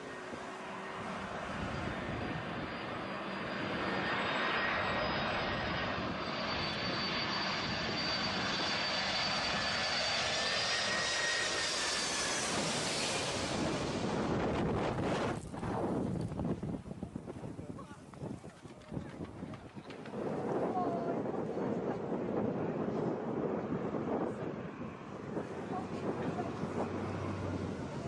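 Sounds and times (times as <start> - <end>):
jet engines whining: 0.0 - 15.4, 19.7 - 28.0.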